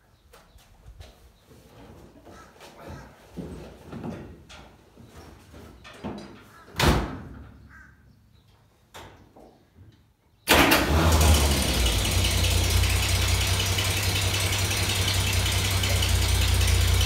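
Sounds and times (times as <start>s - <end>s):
engine starting and running: 10.5s - 17.0s.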